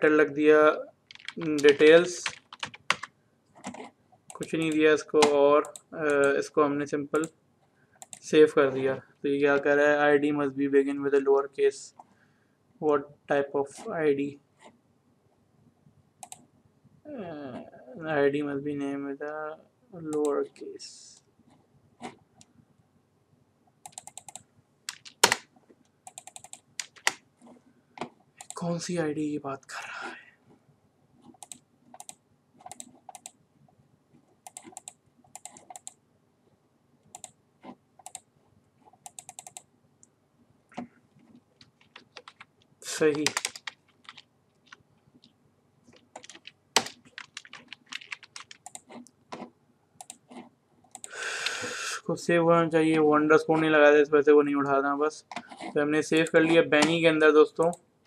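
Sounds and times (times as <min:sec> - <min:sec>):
computer keyboard keystrokes: 0:01.1 - 0:03.1, 0:23.9 - 0:25.4, 0:26.1 - 0:27.2, 0:34.5 - 0:36.0, 0:39.1 - 0:39.6, 0:41.6 - 0:42.5, 0:43.1 - 0:44.8, 0:46.0 - 0:49.0.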